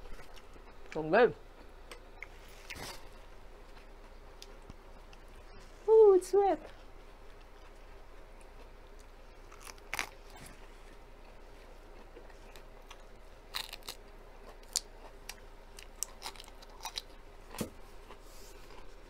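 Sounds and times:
chewing: 6.7s - 19.0s
lettuce crunching: 8.5s - 10.5s, 12.0s - 18.9s.

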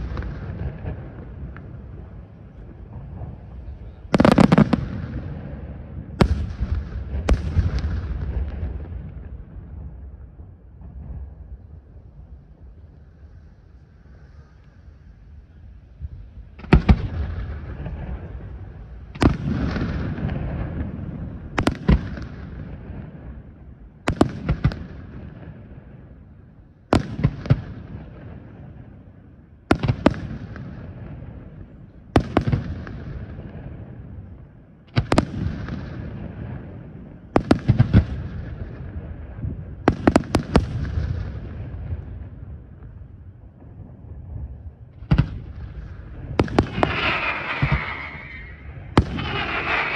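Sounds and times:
firework shells bursting: 46.3s - 49.9s.

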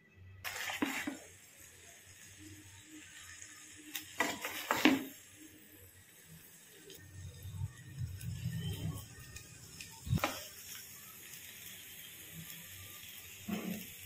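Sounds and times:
noodles sizzling in a pan: 0.4s - 14.0s
wooden spatula stirring: 0.5s - 1.3s, 4.2s - 5.2s.

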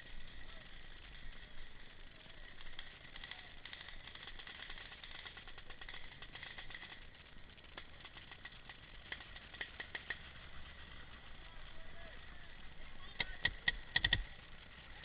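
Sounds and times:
sharp clicks: 2.6s - 10.3s, 13.1s - 14.4s.

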